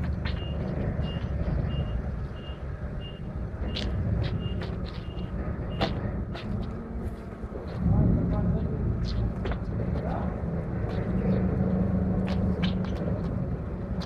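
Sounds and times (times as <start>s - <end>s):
low engine rumble: 0.0s - 14.0s
reversing alarm beeping: 0.3s - 6.0s.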